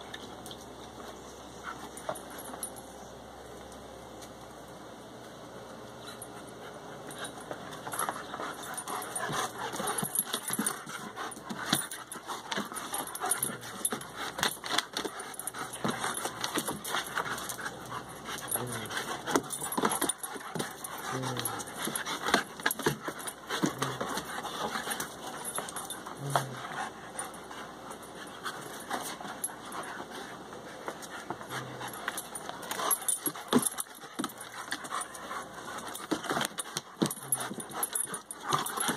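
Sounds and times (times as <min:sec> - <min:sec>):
dogs panting: 0:06.0 - 0:38.9
paws scuffling on wooden decking: 0:06.6 - 0:38.9
dogs growling: 0:07.0 - 0:38.9.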